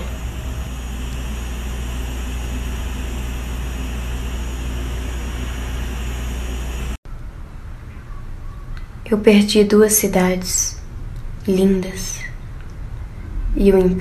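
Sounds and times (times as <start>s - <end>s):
steady hiss: 0.0s - 7.0s
strong low hum: 0.0s - 7.0s.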